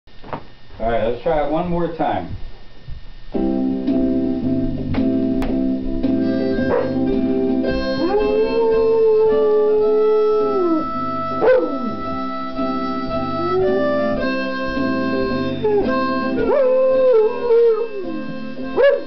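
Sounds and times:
blues harmonica chords: 3.4 - 19.0
dog howling: 6.6 - 7.0, 7.8 - 19.0.

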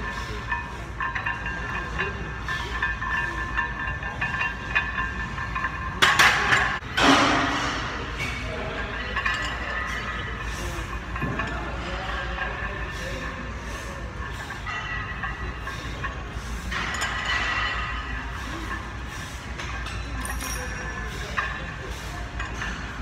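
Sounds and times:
metallic clink of barbell plates: 19.9 - 22.9.

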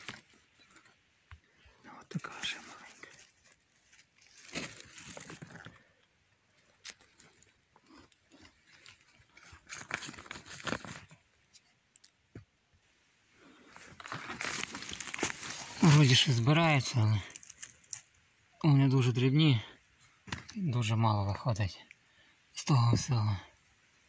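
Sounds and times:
leaves and twigs crunching underfoot: 0.0 - 12.2, 13.4 - 18.2.

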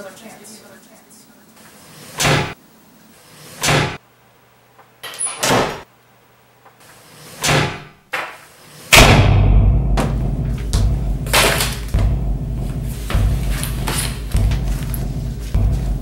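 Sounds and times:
wooden doors slamming: 5.4 - 5.8.

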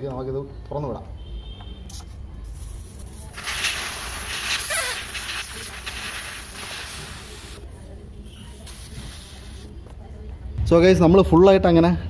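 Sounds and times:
air hissing from tyre valve: 1.9 - 9.8.

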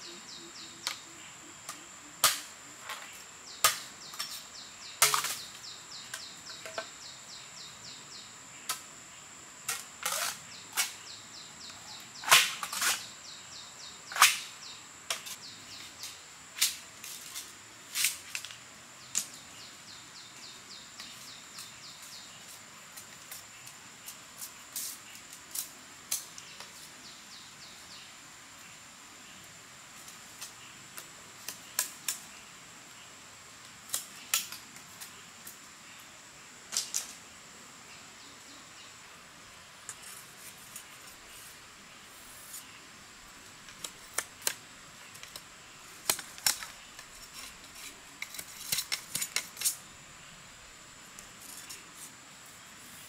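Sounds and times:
insects trilling: 0.0 - 53.0
machete chopping bamboo: 2.2 - 2.5, 3.6 - 4.4, 12.2 - 13.0.

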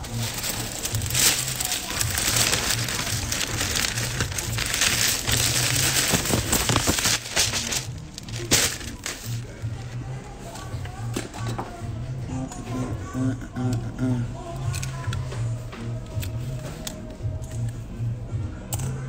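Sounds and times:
plastic bag crinkling and rustling: 0.0 - 9.9
background music with low beat: 0.0 - 19.0.

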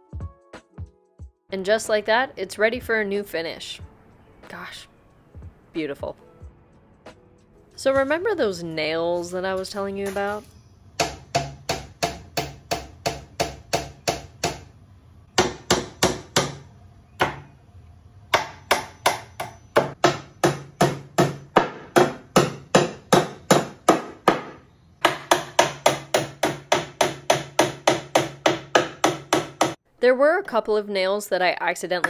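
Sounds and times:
hammer striking nails: 11.0 - 14.7, 15.4 - 17.5, 18.3 - 29.8.

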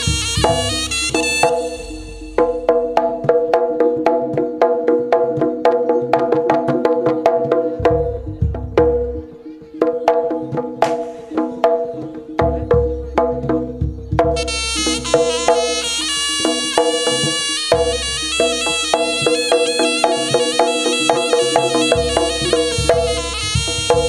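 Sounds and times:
fast percussion strikes: 0.0 - 24.0
deep low drum booms: 7.8 - 9.3, 12.4 - 14.6, 22.0 - 24.0.

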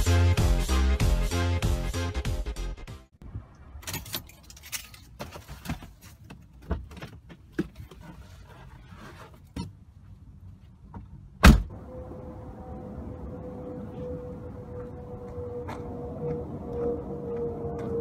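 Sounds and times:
car keys jangling: 3.8 - 5.2
car door shutting: 11.4 - 11.7.

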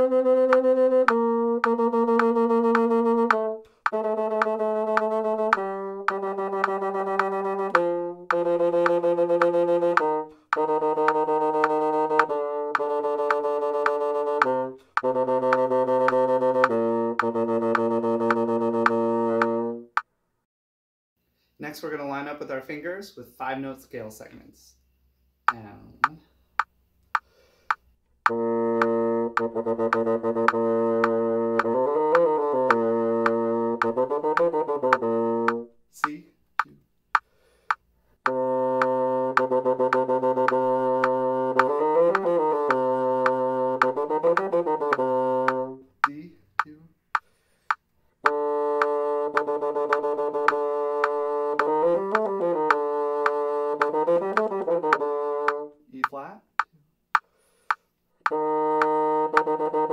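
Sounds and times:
bassoon playing low notes: 0.0 - 20.0, 28.2 - 36.7, 38.2 - 47.0, 48.2 - 56.0, 58.2 - 59.9
metronome clicking: 0.0 - 20.1, 25.5 - 59.7
instrument holding long note: 28.3 - 35.7, 48.2 - 55.8, 58.3 - 59.9.

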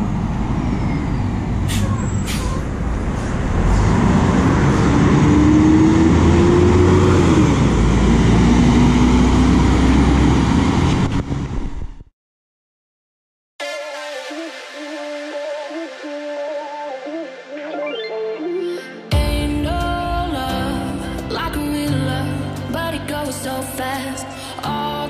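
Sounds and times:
bus diesel engine accelerating: 0.0 - 12.1.

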